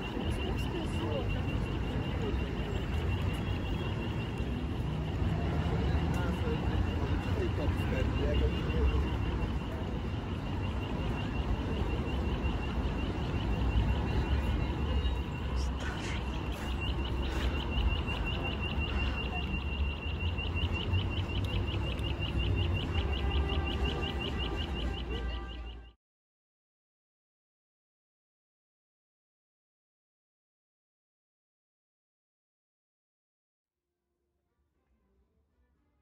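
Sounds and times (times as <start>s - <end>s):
bustle of passers-by: 0.0s - 26.0s
low traffic rumble: 0.0s - 26.0s.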